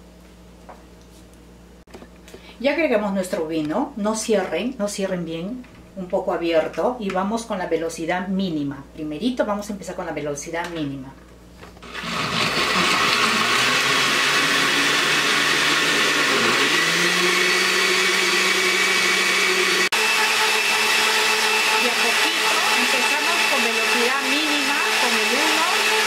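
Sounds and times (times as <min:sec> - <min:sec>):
blender motor running: 0:11.8 - 0:26.0.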